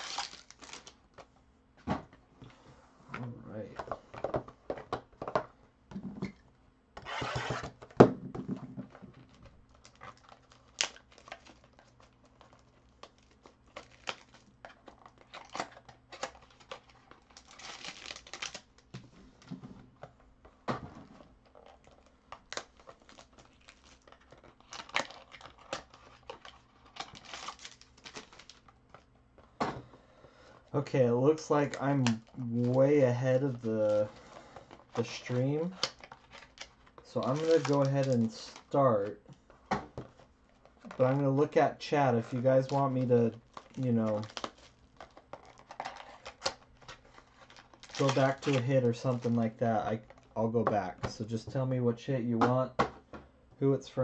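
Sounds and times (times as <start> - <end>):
foil wrappers crinkling: 0.0 - 1.0, 9.3 - 18.9, 21.4 - 29.0, 33.4 - 38.8, 42.4 - 50.3.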